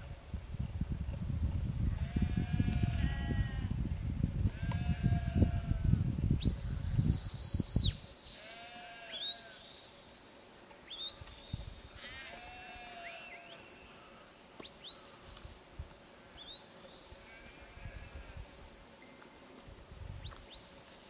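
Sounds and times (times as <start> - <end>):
wind rumble on microphone: 0.0 - 8.1, 19.7 - 20.4
shepherd's whistle: 6.4 - 8.3
sheep bleating: 8.4 - 9.6, 12.0 - 14.2.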